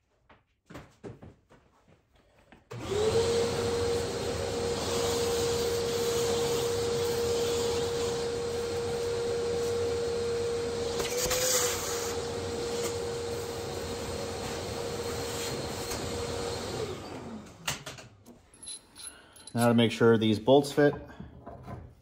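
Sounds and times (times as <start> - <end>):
shop vacuum whining: 2.7 - 18.2.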